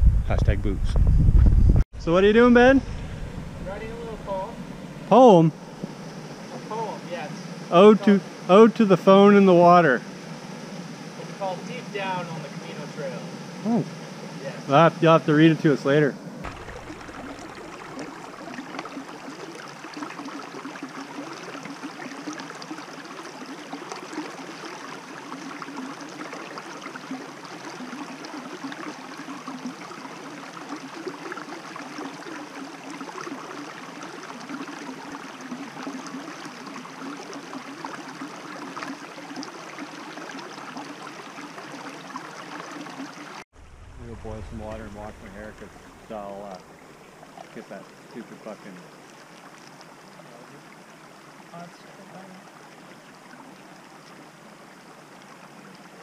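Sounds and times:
stream babbling over stones: 0:16.4 - 0:56.0.

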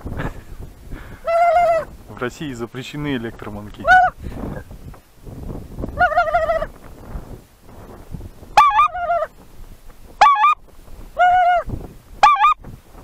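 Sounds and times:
goose call honks: 0:03.8 - 0:04.2, 0:08.6 - 0:09.3, 0:10.2 - 0:10.6, 0:11.2 - 0:12.6.

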